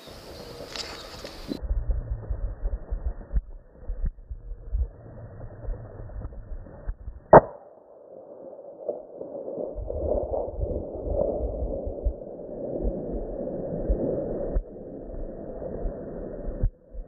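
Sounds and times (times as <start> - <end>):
rifle shot: 7.3 - 8.7.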